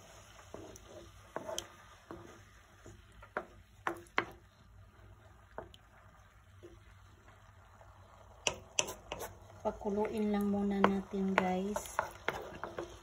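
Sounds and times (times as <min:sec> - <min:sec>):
wooden spoon stirring in sauce: 0:00.0 - 0:13.0
spoon knocking against pan: 0:03.3 - 0:04.4, 0:08.4 - 0:09.3, 0:10.8 - 0:13.0.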